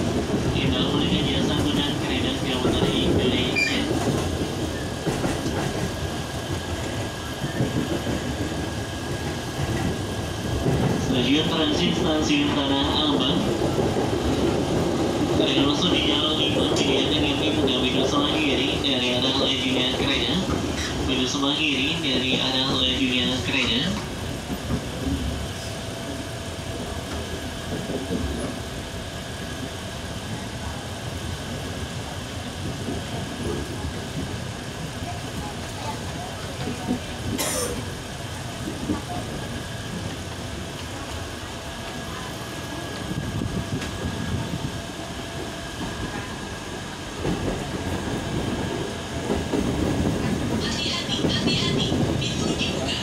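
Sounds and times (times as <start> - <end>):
wheels clattering on rails: 0.0 - 25.4
faint passenger voices: 0.0 - 53.0
train rumble inside carriage: 0.0 - 53.0.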